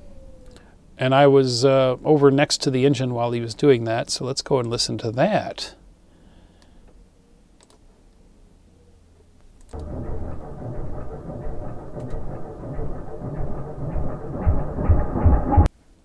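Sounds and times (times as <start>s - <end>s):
faint click: 0.4s - 0.7s, 7.6s - 7.8s
low hum: 9.7s - 15.7s
slowed-down dirt bike engine: 9.7s - 15.7s.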